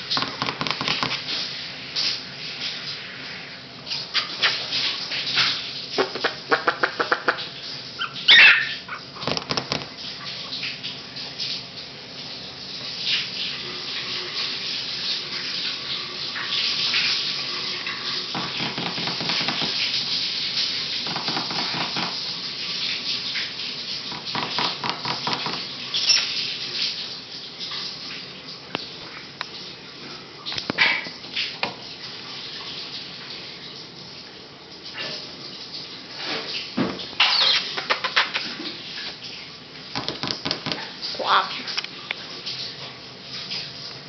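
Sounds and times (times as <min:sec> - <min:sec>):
shower running: 0:00.0 - 0:44.0
puppies yipping and barking: 0:08.0 - 0:09.2.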